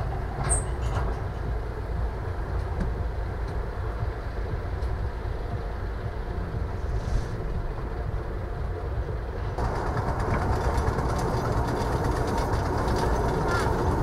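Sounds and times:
small locomotive rumbling: 0.0 - 14.0
short high squeak: 0.4 - 1.0.

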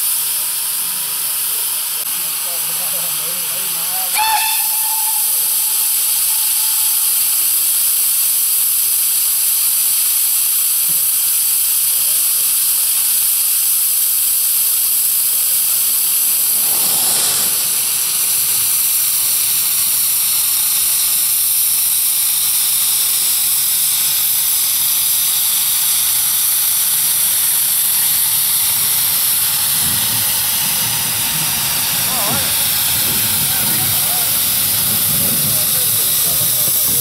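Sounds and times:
steam locomotive hissing: 0.0 - 37.0
low rumble: 15.3 - 20.5.

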